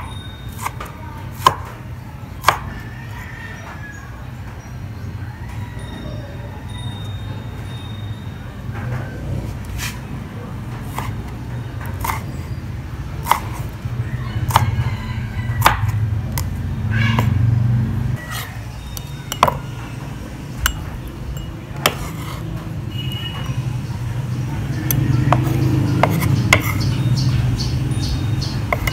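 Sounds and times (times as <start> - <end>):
knife chopping on wooden board: 0.5 - 1.8, 2.4 - 2.8, 10.8 - 11.2, 11.8 - 12.3, 13.2 - 13.8, 14.4 - 14.8, 15.6 - 16.5, 19.3 - 19.6, 21.8 - 22.4, 24.8 - 26.9, 28.7 - 28.9.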